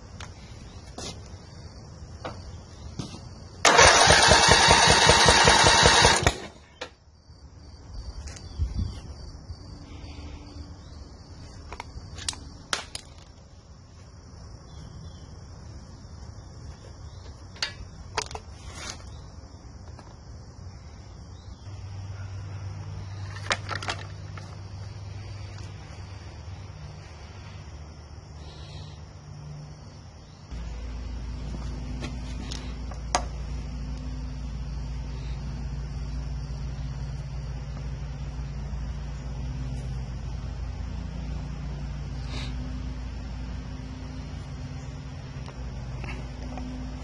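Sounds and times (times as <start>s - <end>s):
engine cranking on starter: 3.6s - 6.5s.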